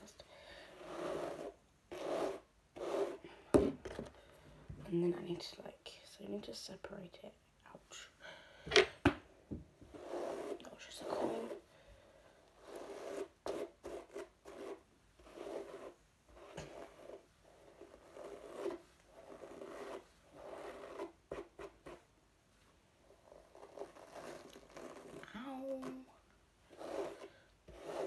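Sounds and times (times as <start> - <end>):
hairbrush rasping through hair: 0.7 - 3.2, 9.9 - 11.7, 23.4 - 26.1, 26.7 - 28.0.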